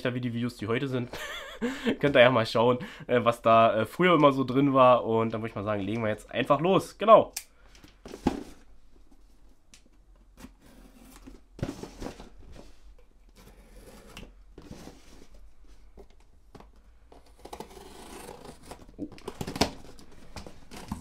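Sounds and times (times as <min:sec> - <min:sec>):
packaging rustling: 0:17.2 - 0:21.0.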